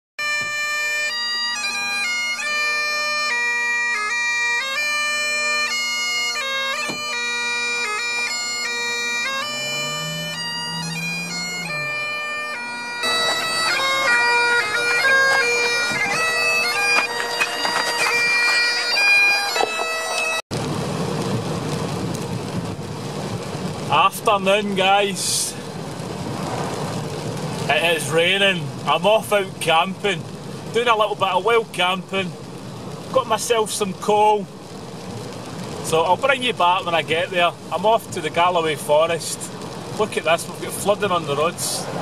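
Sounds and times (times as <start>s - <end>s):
bagpipe chanter melody: 0.2s - 20.4s
bagpipe drones: 0.2s - 20.4s.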